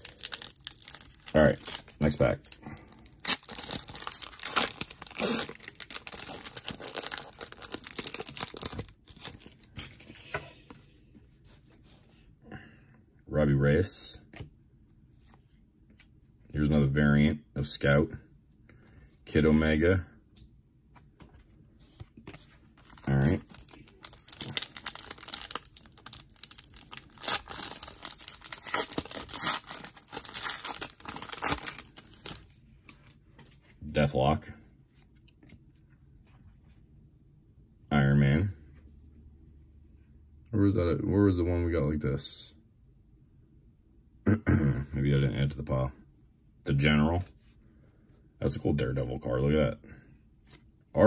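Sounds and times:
foil wrapper crinkling: 0.0s - 10.0s, 22.8s - 32.4s.

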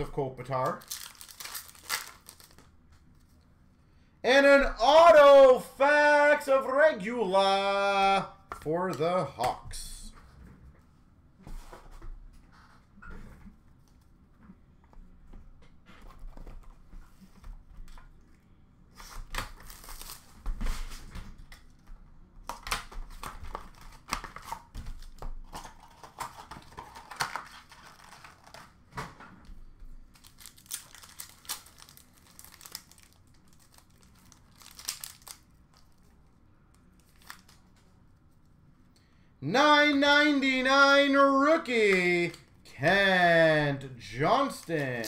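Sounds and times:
wrapper tearing and crinkling: 0.6s - 2.7s, 19.4s - 20.4s, 25.5s - 28.7s, 30.1s - 36.0s, 37.0s - 37.7s.

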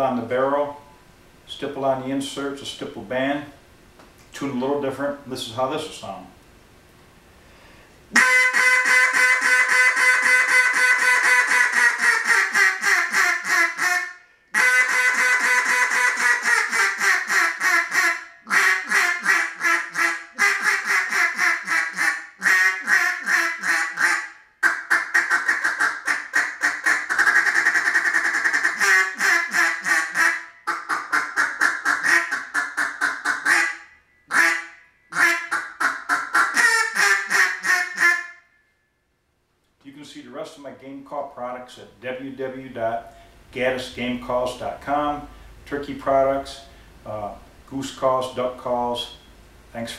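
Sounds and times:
duck call quacks: 8.1s - 38.5s.

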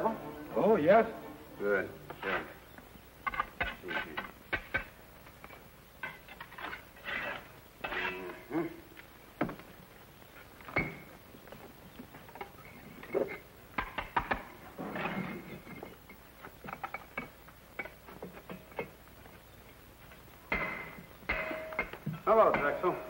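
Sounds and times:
trowel scraping on mortar: 2.1s - 2.6s, 6.2s - 8.4s.

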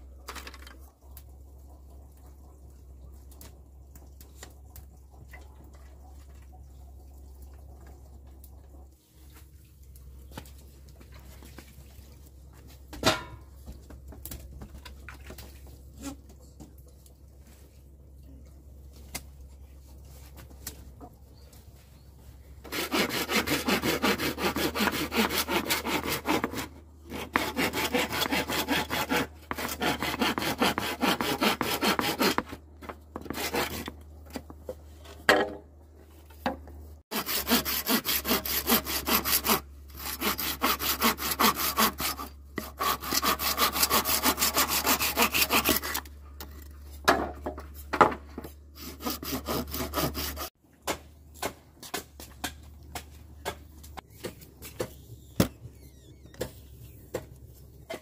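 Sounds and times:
hand saw cutting bamboo: 22.6s - 32.6s, 33.2s - 34.0s, 37.1s - 46.1s, 48.8s - 53.6s.

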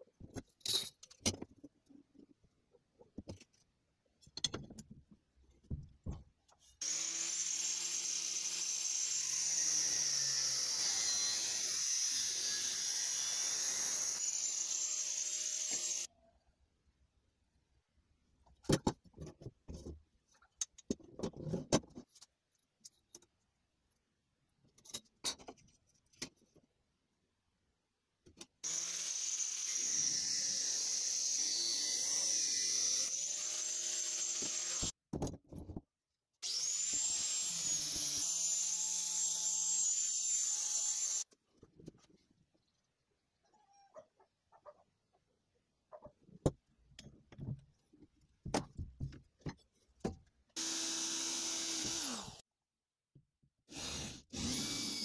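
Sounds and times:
knocks and clicks of metal handling: 3.0s - 6.6s
angle grinder cutting steel: 6.8s - 16.1s, 28.7s - 34.9s, 36.4s - 41.3s.

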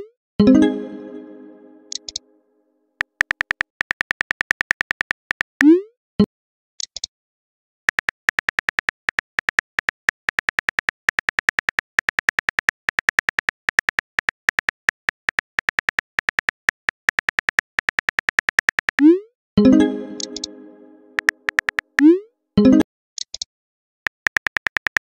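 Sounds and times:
keyboard typing clicks: 0.5s - 2.2s, 19.7s - 22.1s.

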